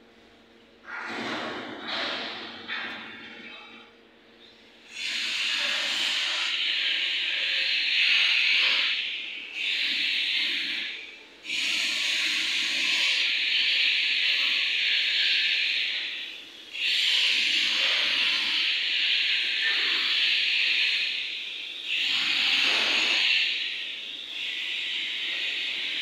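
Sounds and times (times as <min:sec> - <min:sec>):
compressed air hissing: 0:11.5 - 0:26.0.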